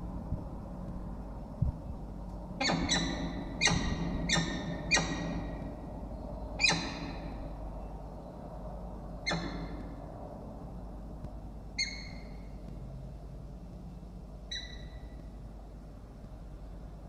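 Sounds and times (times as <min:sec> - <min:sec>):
falcons calling: 0:02.6 - 0:05.8, 0:06.6 - 0:07.5.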